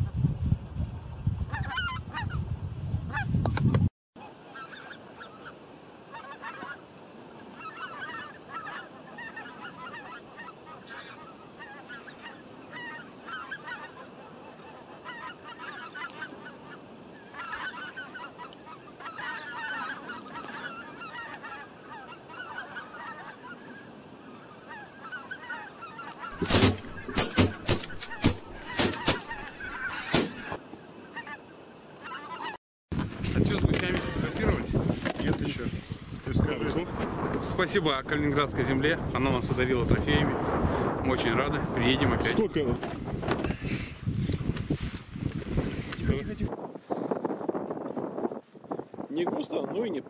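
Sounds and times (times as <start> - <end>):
geese honking: 1.5 - 2.4, 4.2 - 32.6
loud sharp knocks: 26.4 - 29.4.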